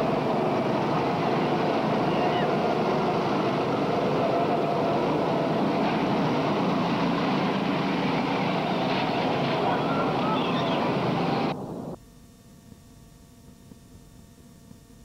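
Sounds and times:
go-kart engines droning: 0.0s - 12.0s.

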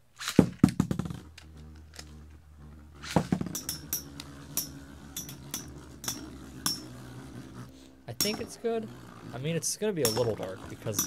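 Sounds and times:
spinning tops launching rattle: 0.1s - 2.4s, 3.0s - 7.2s, 8.1s - 11.0s
spinning tops humming: 1.0s - 11.0s
metallic clinks of tops clashing: 3.5s - 6.9s.

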